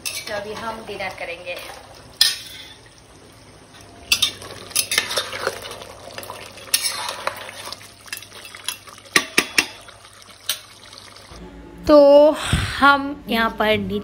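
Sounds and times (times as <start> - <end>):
spatula scraping curry in pot: 6.7 - 7.8.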